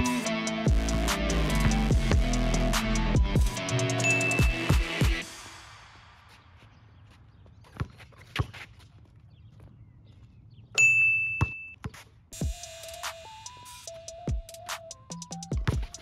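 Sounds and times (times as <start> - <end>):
music: 0.0 - 6.4, 12.4 - 16.0
basketball bouncing on asphalt: 6.2 - 12.3, 15.6 - 16.0
ringing ding: 10.8 - 11.8.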